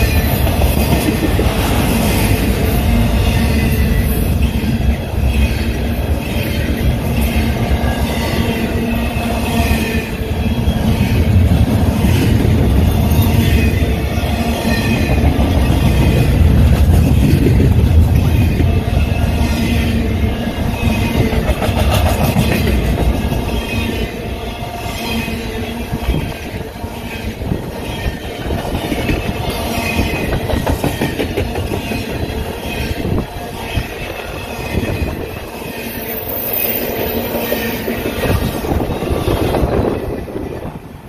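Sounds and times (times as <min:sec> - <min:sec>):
train wheels clacking: 0:00.0 - 0:05.8, 0:20.8 - 0:23.7, 0:28.0 - 0:33.9.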